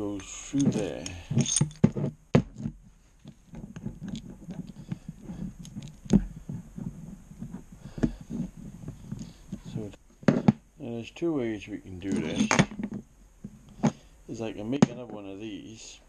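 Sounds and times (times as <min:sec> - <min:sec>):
low rumbling handling noise: 0:00.0 - 0:15.2.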